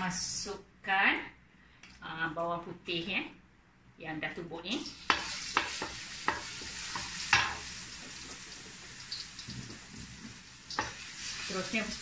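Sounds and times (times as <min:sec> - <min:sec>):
garlic sizzling in hot oil: 0:04.8 - 0:12.0
wooden spatula knocking pan: 0:05.1 - 0:07.6.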